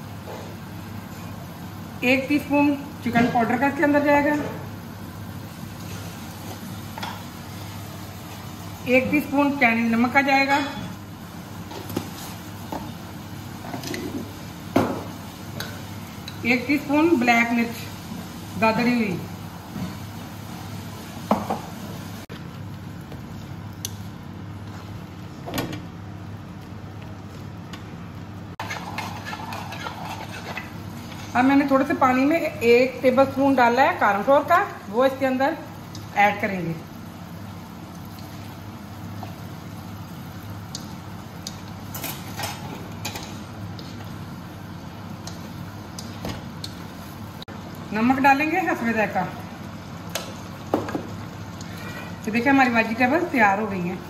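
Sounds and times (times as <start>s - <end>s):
spatula scraping pan: 28.6s - 31.5s.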